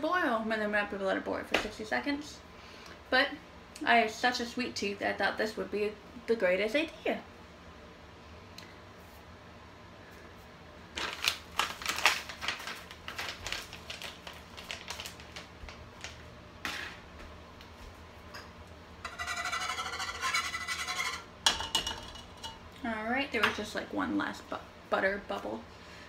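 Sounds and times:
plastic pouch crinkling: 0:10.9 - 0:16.2
whisk scraping saucepan: 0:19.0 - 0:21.4.

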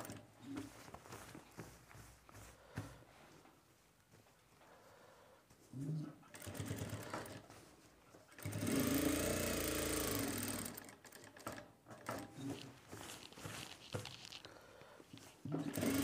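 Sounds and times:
sewing machine stitching: 0:00.0 - 0:00.3, 0:06.3 - 0:07.5, 0:08.3 - 0:14.4, 0:15.4 - 0:16.0.

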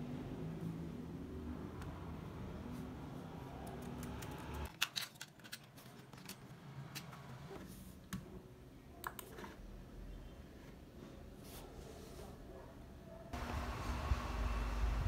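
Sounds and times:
computer mouse clicks: 0:03.6 - 0:04.7
laptop keyboard typing: 0:03.6 - 0:04.7.

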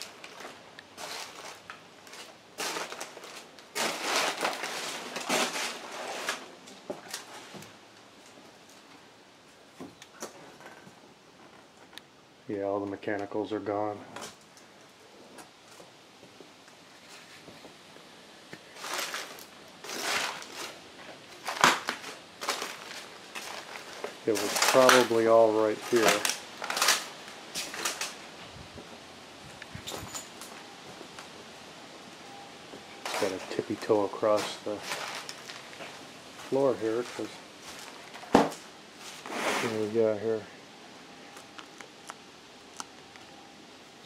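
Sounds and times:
footsteps crunching on debris: 0:00.0 - 0:08.9, 0:18.6 - 0:28.2, 0:33.0 - 0:39.9.

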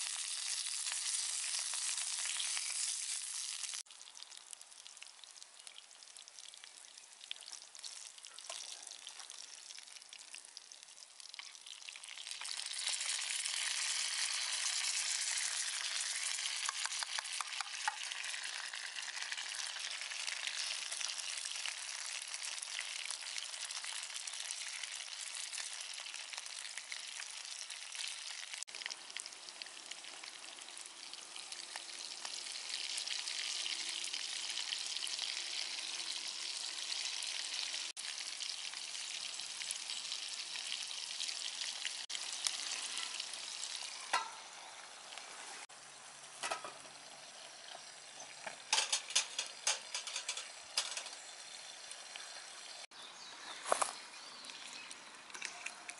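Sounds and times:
food sizzling in skillet: 0:00.0 - 0:53.0.

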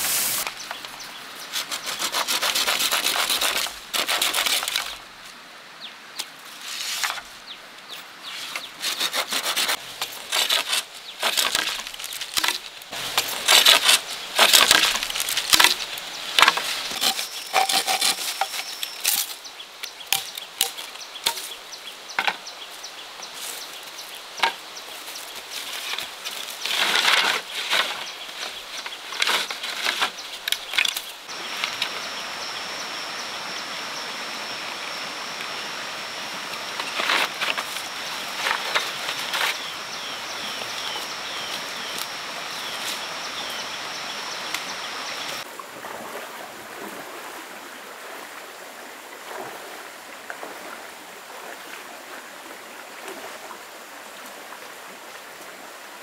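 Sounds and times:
wood rubbing and sawing: 0:01.4 - 0:05.0, 0:08.3 - 0:19.3, 0:25.4 - 0:32.0.

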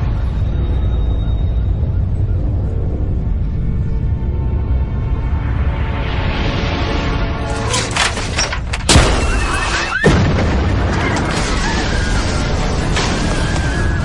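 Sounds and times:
loud rumble of destruction: 0:07.6 - 0:14.0.

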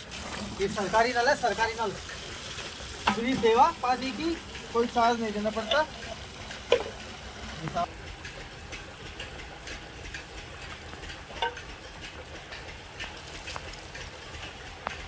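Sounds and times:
tap water running into bucket: 0:00.0 - 0:15.0
tin can clicks and splashes: 0:02.1 - 0:03.7, 0:04.3 - 0:07.1, 0:11.3 - 0:11.7.

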